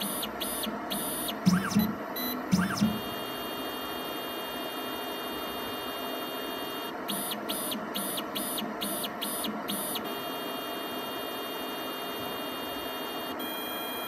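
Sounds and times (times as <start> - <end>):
analyzer electrical hum: 0.0 - 14.0
short pipetting drive whines: 0.0 - 14.0.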